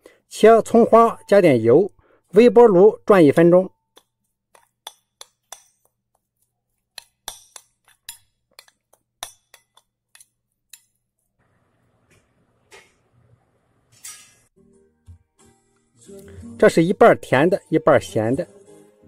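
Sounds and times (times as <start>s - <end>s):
metal spoon clinking on glass bowl: 3.9s - 5.9s, 7.0s - 10.9s.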